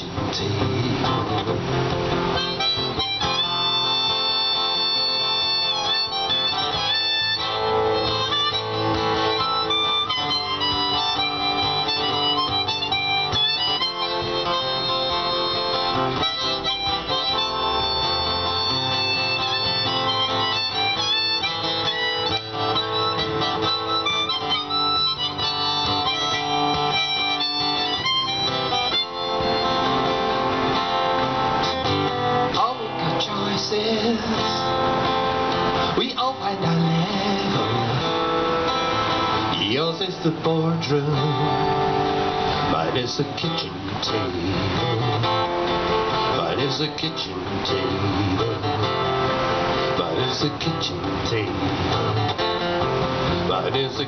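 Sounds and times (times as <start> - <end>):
strummed acoustic guitar: 0.0 - 54.0
harmonica solo: 1.8 - 39.9.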